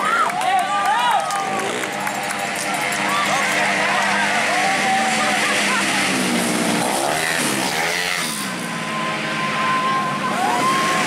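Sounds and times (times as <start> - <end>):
scooters passing at high revs: 0.0 - 11.0
steady high engine note: 1.4 - 11.0.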